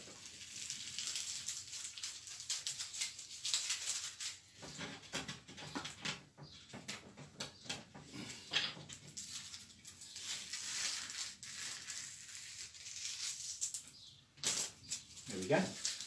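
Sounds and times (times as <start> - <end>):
masking tape peeling: 0.0 - 4.7, 8.9 - 16.0.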